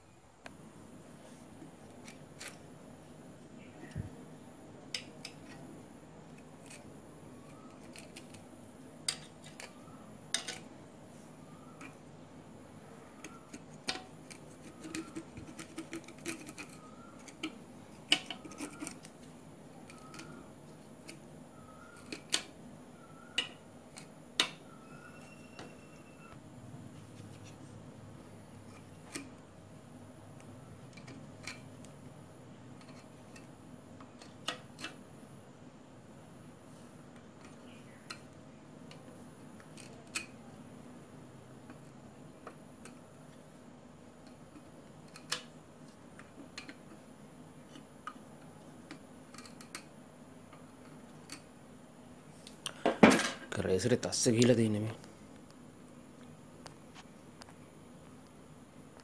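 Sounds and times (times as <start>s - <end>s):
tools clicking and scraping: 7.5s - 10.7s, 13.2s - 20.4s, 21.9s - 22.5s.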